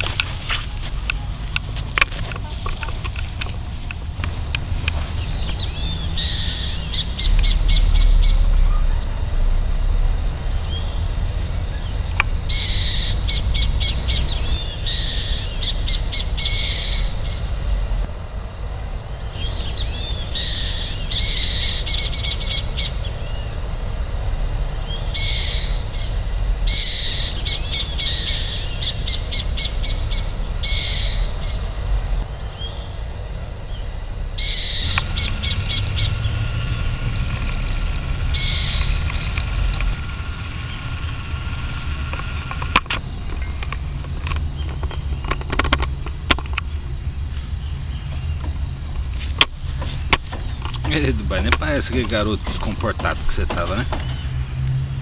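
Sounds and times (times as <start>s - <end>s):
low rumble: 0.0s - 45.3s
owl chattering calls: 5.2s - 9.0s, 11.8s - 17.6s, 19.4s - 23.6s, 24.8s - 31.8s, 34.2s - 43.2s.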